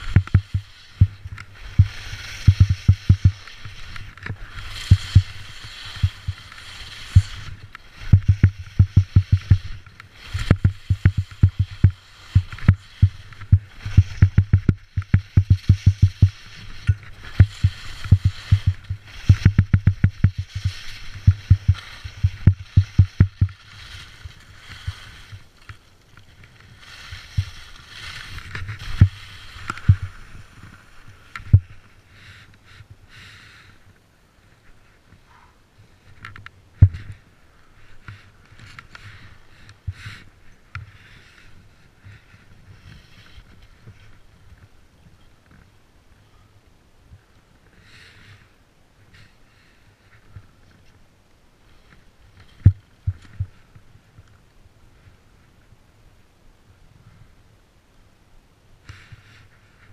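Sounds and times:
skis scraping on snow: 0:00.0 - 0:33.8, 0:36.9 - 0:44.8, 0:51.6 - 0:53.8
rapid low knocks: 0:00.1 - 0:03.4, 0:08.1 - 0:09.7, 0:10.5 - 0:16.4, 0:17.4 - 0:23.6.

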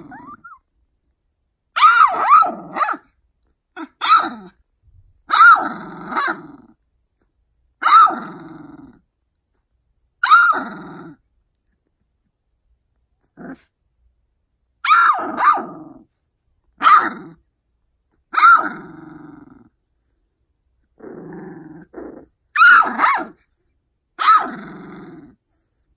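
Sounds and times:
puppy barking: 0:01.8 - 0:03.1, 0:03.8 - 0:04.5, 0:05.3 - 0:06.4, 0:07.8 - 0:08.2, 0:10.2 - 0:10.6, 0:14.8 - 0:15.8, 0:16.8 - 0:17.4, 0:18.3 - 0:18.8, 0:22.5 - 0:23.4, 0:24.2 - 0:24.6.

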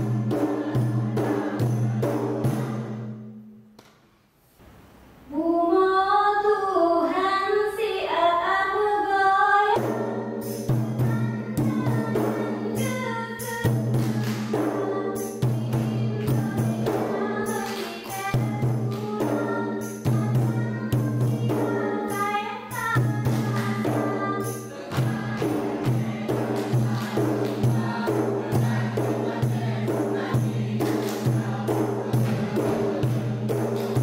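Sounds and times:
rhythmic percussive hits: 0:00.0 - 0:04.2, 0:09.8 - 0:34.0
voices singing: 0:11.0 - 0:34.0.

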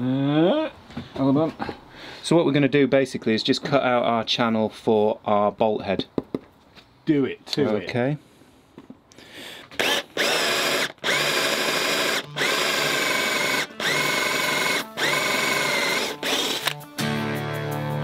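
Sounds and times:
cordless drill boring into wood: 0:09.8 - 0:16.8
music: 0:12.3 - 0:18.0.

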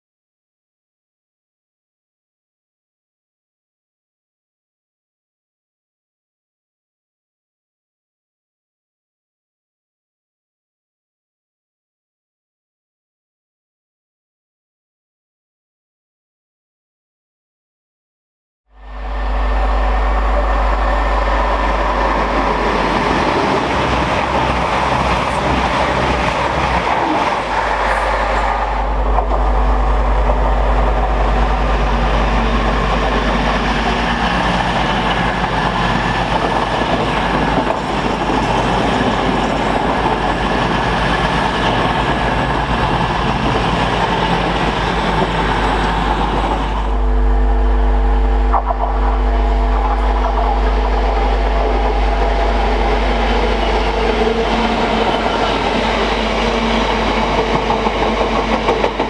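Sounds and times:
diesel locomotive engine drone: 0:18.7 - 0:59.0
passenger train passing at speed: 0:18.7 - 0:59.0.

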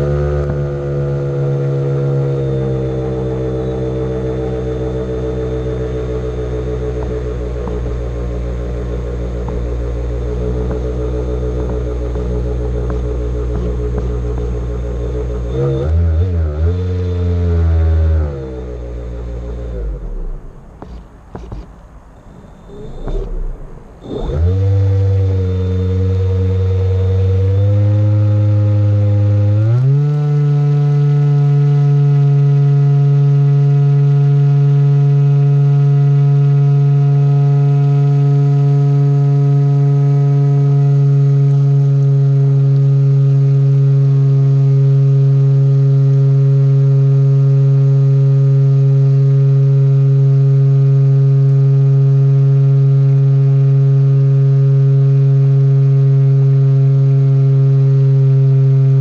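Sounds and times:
electric motor and propeller droning: 0:00.0 - 0:37.2.

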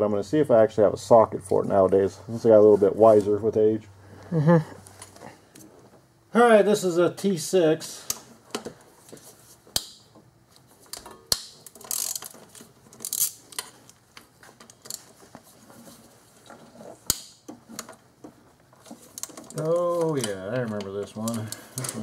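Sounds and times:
ratchet pawl clicking: 0:11.8 - 0:12.3.

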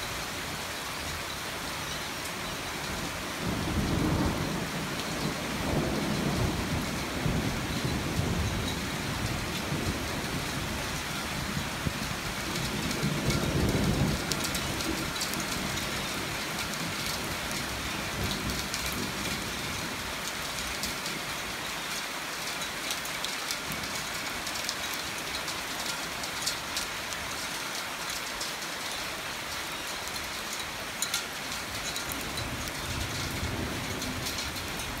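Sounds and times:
heavy rain falling: 0:00.0 - 0:35.0
low rumble of thunder: 0:03.4 - 0:21.1, 0:31.8 - 0:35.0.

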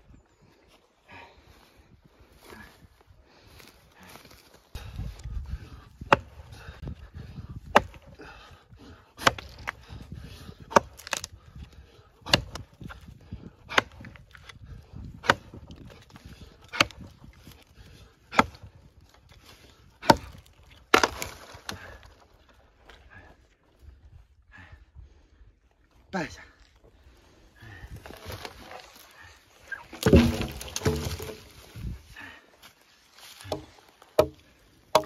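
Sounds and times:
axe chopping tree trunk: 0:06.0 - 0:06.3, 0:07.6 - 0:08.0, 0:09.2 - 0:09.8, 0:10.6 - 0:11.3, 0:12.2 - 0:13.0, 0:13.7 - 0:14.2, 0:15.2 - 0:15.9, 0:16.7 - 0:17.1, 0:18.3 - 0:18.7, 0:20.0 - 0:22.0, 0:29.9 - 0:31.5, 0:33.4 - 0:35.0.

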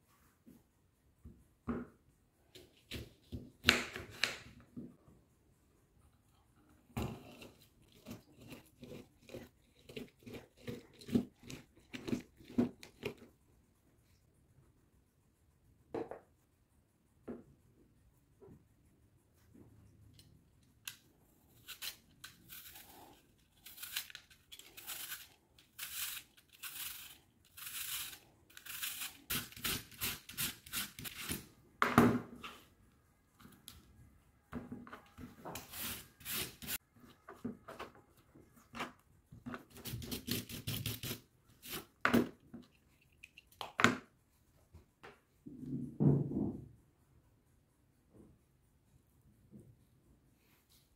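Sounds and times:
peeler rasping through apple: 0:07.0 - 0:13.3, 0:20.9 - 0:31.5, 0:35.6 - 0:36.8, 0:39.6 - 0:41.9.

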